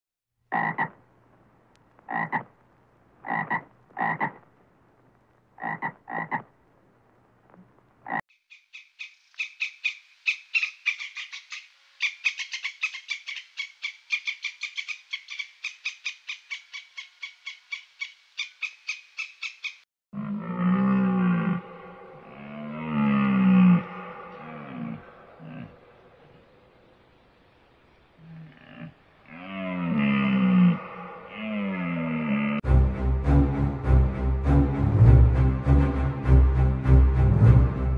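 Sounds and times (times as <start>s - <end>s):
frog croaking: 0.5s - 1.0s, 2.0s - 2.6s, 3.2s - 4.5s, 5.6s - 6.5s, 8.0s - 13.4s
deep moaning animal call: 20.2s - 26.8s, 28.2s - 32.6s.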